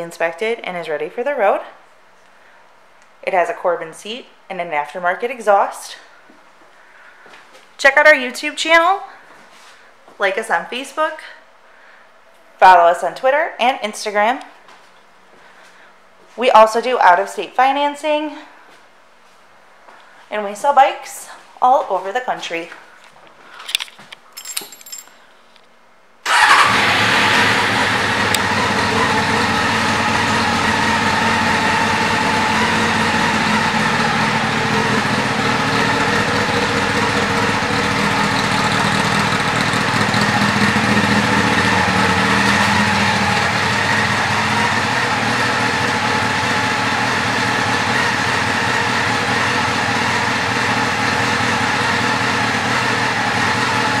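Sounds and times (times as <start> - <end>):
motorcycle engine starting and idling: 26.2 - 54.0.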